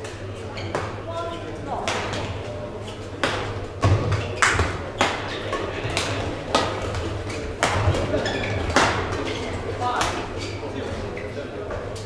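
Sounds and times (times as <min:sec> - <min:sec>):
rackets striking shuttlecock: 0:01.8 - 0:10.4.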